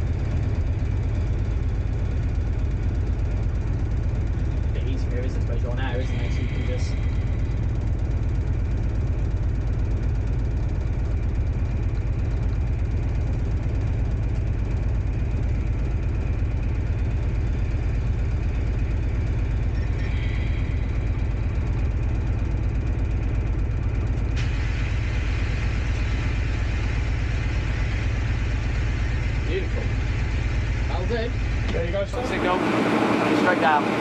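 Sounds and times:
train diesel engine running: 0.0s - 34.0s.

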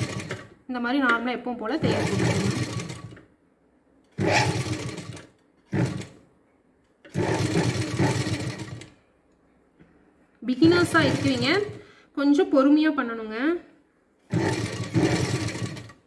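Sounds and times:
sewing machine stitching: 0.0s - 0.6s, 1.8s - 3.3s, 4.1s - 6.2s, 7.0s - 9.0s, 10.6s - 11.8s, 14.3s - 16.0s.

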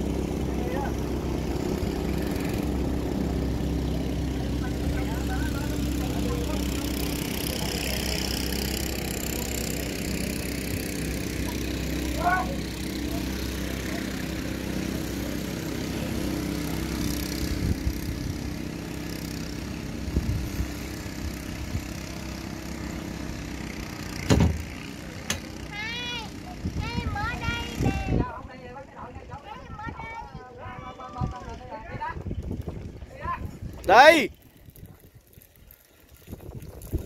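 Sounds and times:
engine idling: 0.0s - 28.1s
loud thump: 24.2s - 24.6s.

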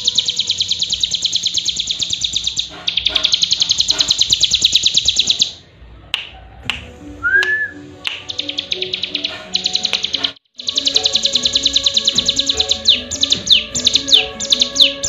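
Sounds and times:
bird trilling: 0.0s - 5.6s, 7.5s - 15.0s.

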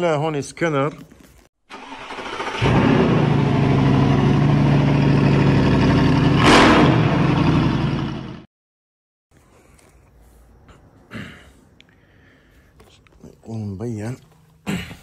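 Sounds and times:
car engine starting and running: 1.7s - 8.5s.

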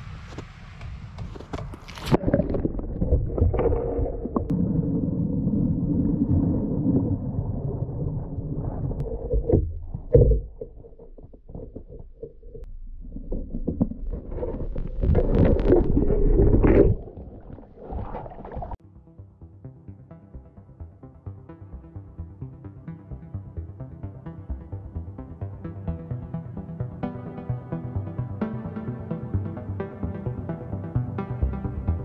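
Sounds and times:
low underwater rumbles and knocks: 0.4s - 18.8s
underwater water sloshing: 1.7s - 18.8s.

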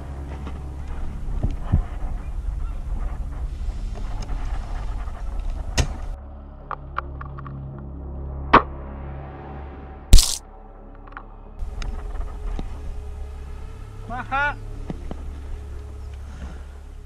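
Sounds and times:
low rumbling wind: 0.0s - 6.2s
handling noise: 10.2s - 10.4s.

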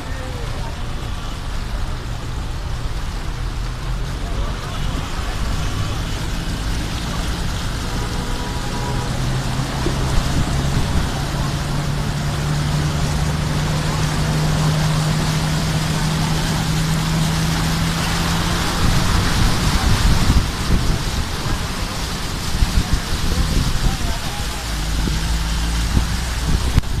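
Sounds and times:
van engine hum: 0.0s - 27.0s
water rushing and splashing: 0.0s - 27.0s.

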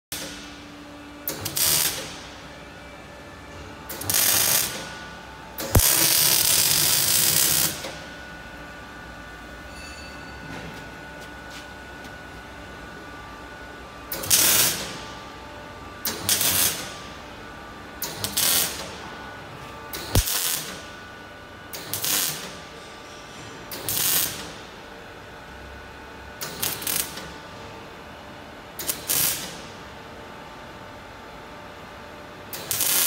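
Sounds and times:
welding arc bursts: 1.3s - 2.2s, 3.9s - 4.8s, 5.6s - 7.9s, 14.1s - 14.9s, 16.1s - 17.0s, 18.0s - 19.0s, 20.0s - 20.8s, 21.8s - 22.6s, 23.8s - 24.5s, 26.4s - 27.3s, 28.8s - 29.7s, 32.6s - 33.0s.

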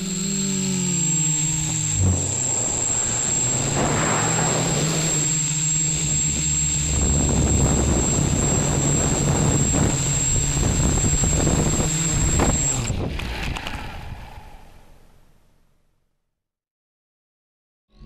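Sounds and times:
drone motors buzzing: 0.0s - 14.0s
steady high whine: 0.0s - 15.3s
wind rushing over microphone: 1.7s - 14.7s.

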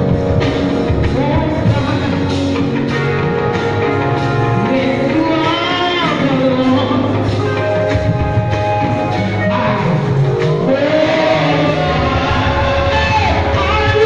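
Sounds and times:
live band with drums: 0.0s - 14.0s
woman singing into a microphone: 1.1s - 2.5s, 4.6s - 7.4s.

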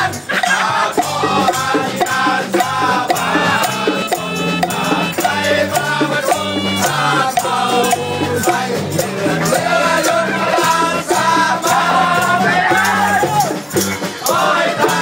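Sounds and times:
hand drums and rattles: 0.0s - 15.0s
people singing and shouting: 0.0s - 15.0s.

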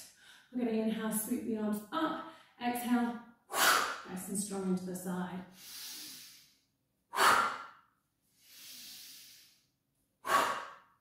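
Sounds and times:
woman breathing forcefully: 3.5s - 4.1s, 5.5s - 11.0s.

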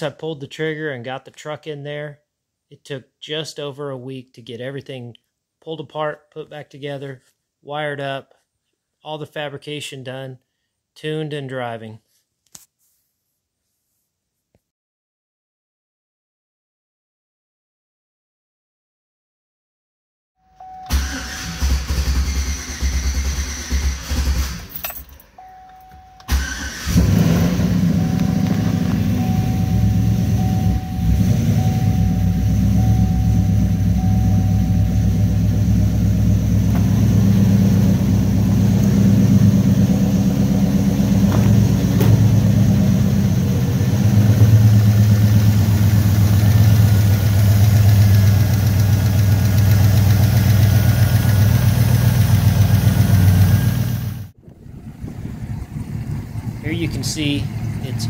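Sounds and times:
car engine starting and idling: 20.6s - 58.0s.

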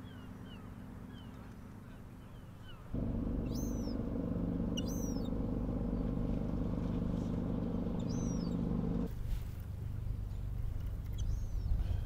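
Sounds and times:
high bird calls: 2.6s - 9.1s
ship engine drone: 2.9s - 9.1s.

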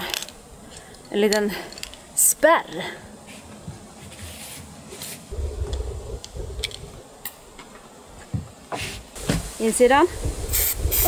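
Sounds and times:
wind buffeting microphone: 5.3s - 7.6s, 9.2s - 11.0s.

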